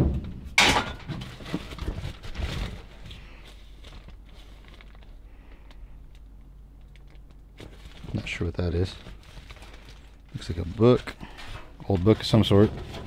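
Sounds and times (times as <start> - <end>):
cardboard and paper rustling: 1.1 - 5.7, 7.0 - 13.0.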